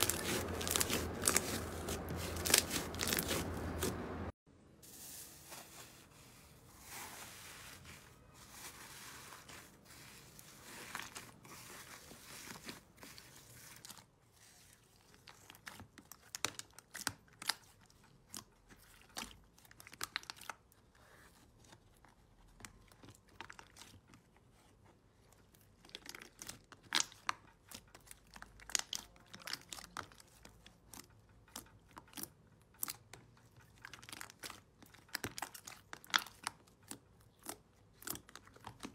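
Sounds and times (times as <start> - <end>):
slime crackling and popping: 0.0 - 4.0, 33.7 - 38.9.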